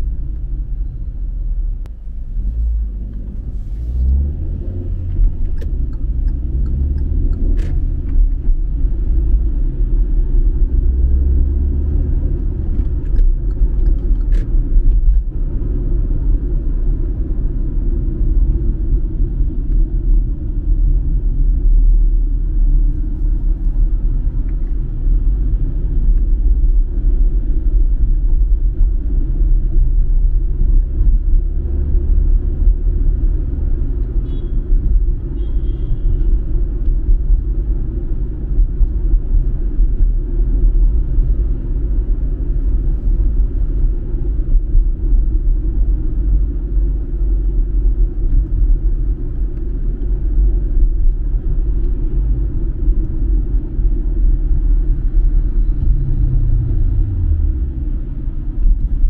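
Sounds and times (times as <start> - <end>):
car interior engine rumble: 0.0 - 59.0
tyre road noise: 0.0 - 59.0.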